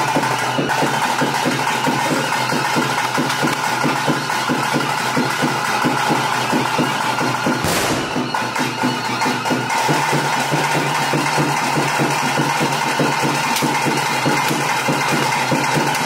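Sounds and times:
drums beating fast rhythm: 0.0s - 16.0s.

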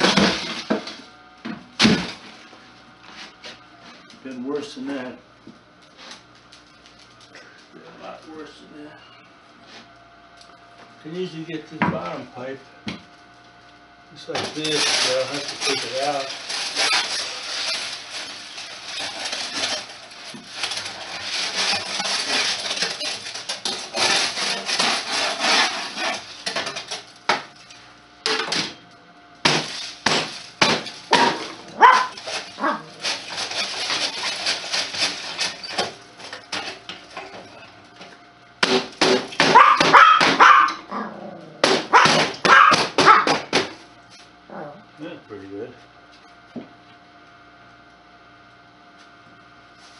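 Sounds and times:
sheet metal pipe scraping and rattling: 18.9s - 26.9s
dog barking: 31.2s - 32.8s, 39.4s - 41.1s, 41.9s - 43.4s.

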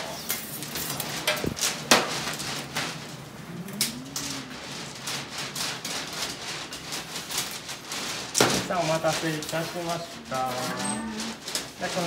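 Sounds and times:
low room hum: 0.0s - 8.1s.

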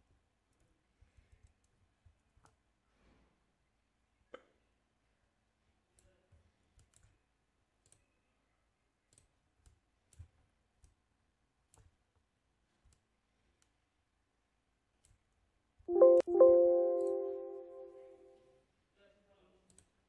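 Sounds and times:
faint computer mouse clicks: 7.8s - 8.2s.

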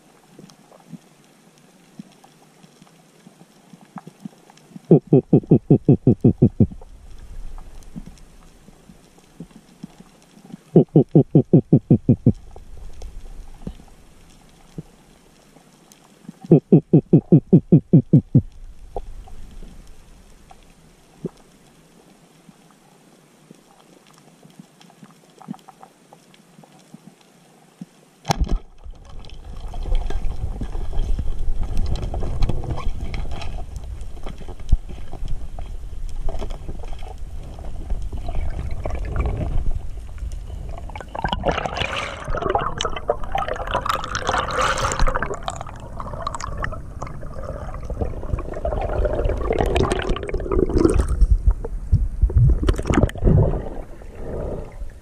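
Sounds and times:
faint underwater clicks: 0.2s - 55.0s
rushing water: 28.4s - 51.7s
bubbling and hissing: 37.6s - 55.0s.

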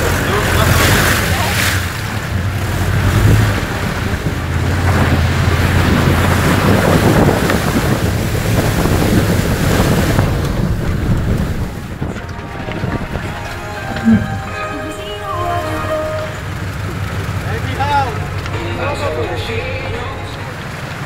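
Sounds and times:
engine droning: 0.0s - 21.0s
water rushing and splashing: 0.0s - 21.0s.

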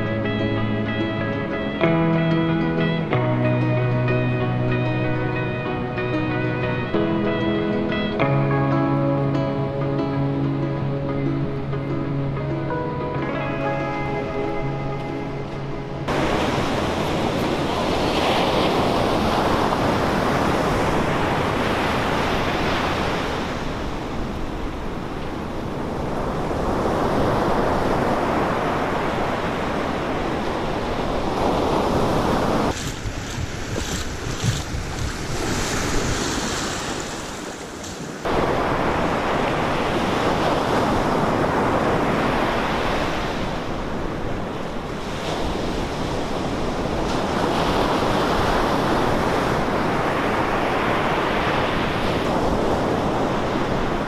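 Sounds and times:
surf breaking on a beach: 13.2s - 54.0s
wind buffeting the microphone: 15.9s - 54.0s.

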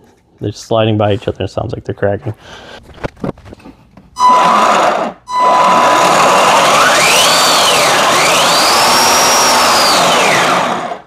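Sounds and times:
electric motor and gear whine: 4.2s - 11.0s.

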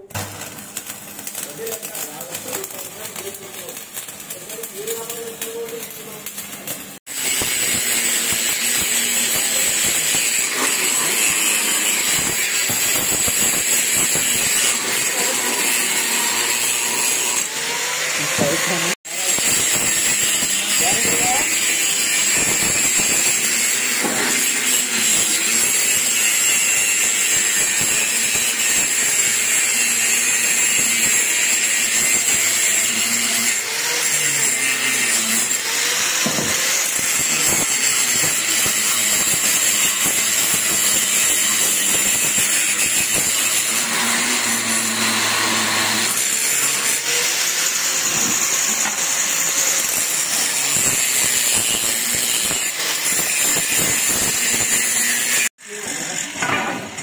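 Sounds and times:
angle grinder grinding steel: 0.0s - 57.0s.

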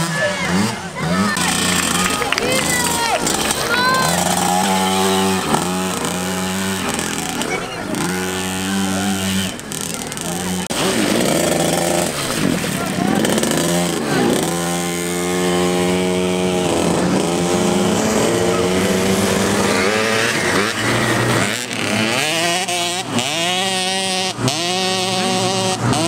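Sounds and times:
motocross bikes riding past: 0.0s - 26.0s.

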